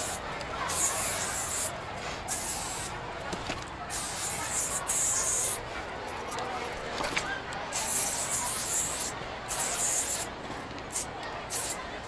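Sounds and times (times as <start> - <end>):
spray paint hissing: 0.0 - 3.0, 3.9 - 5.6, 7.7 - 10.3, 10.9 - 11.8.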